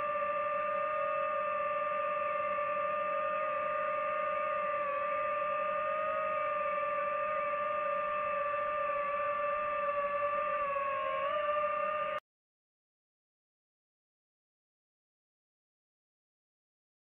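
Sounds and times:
drone propellers whining: 0:00.0 - 0:12.2.

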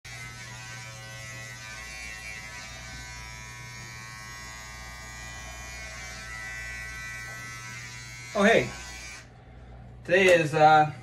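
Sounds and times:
electric hair clippers buzzing: 0:00.1 - 0:09.3.

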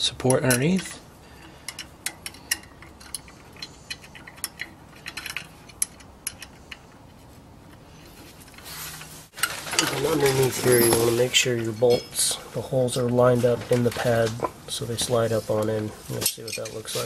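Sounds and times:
metallic clicks of wrench and nut: 0:00.2 - 0:07.1.

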